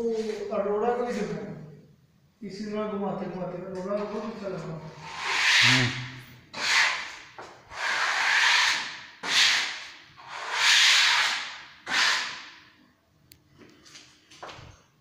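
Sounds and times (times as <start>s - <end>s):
rushing noise on microphone: 5.0s - 6.8s.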